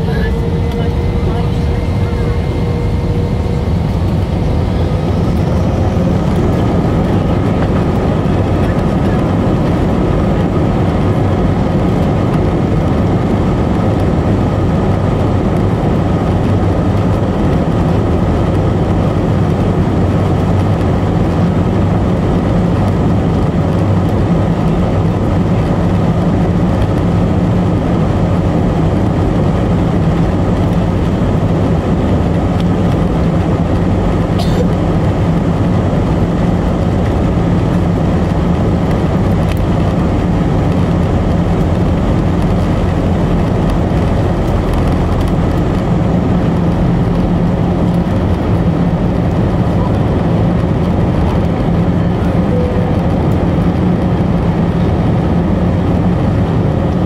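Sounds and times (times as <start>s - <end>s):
airplane cabin rumble: 0.0s - 57.0s
faint high steady tone: 52.4s - 53.1s.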